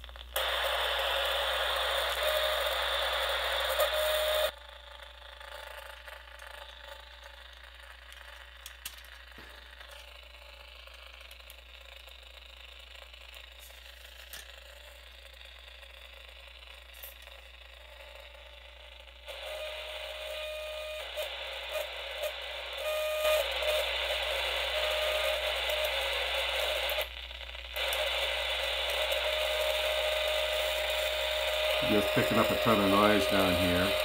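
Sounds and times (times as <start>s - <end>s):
radio static hiss: 0.4s - 4.5s, 19.2s - 34.0s.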